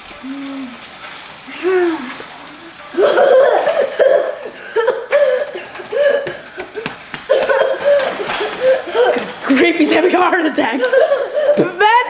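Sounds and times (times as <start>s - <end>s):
child coughing and gasping: 3.0s - 6.6s, 7.3s - 9.6s, 10.7s - 11.8s.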